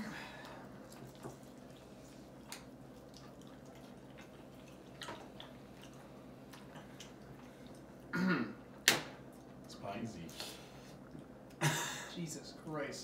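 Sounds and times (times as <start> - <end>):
wet chewing and lip smacks: 0.8 - 8.0.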